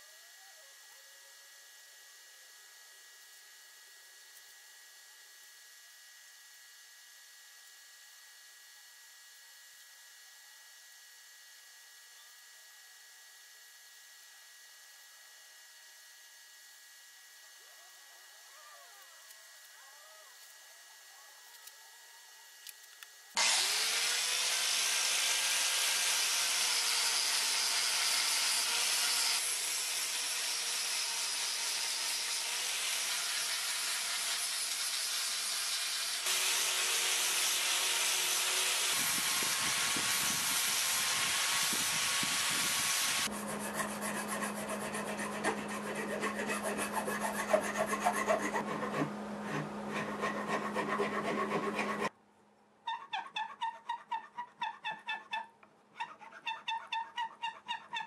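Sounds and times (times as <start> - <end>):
angle grinder grinding wood: 23.4 - 52.1
rasp filing wood: 23.4 - 52.1, 53.0 - 55.4, 56.0 - 58.0.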